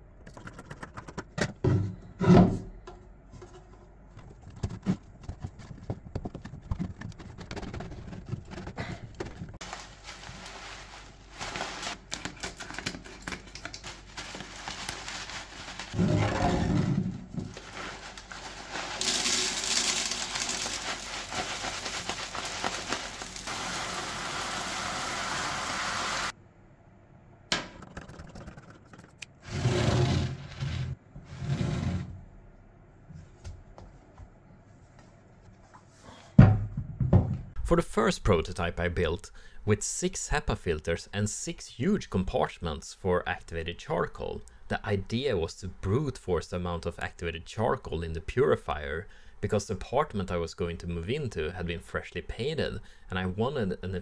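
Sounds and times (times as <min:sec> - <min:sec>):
foil bag crinkling: 0:06.8 - 0:16.0, 0:17.5 - 0:24.4
pellets rattling: 0:09.6 - 0:16.0, 0:17.5 - 0:24.2.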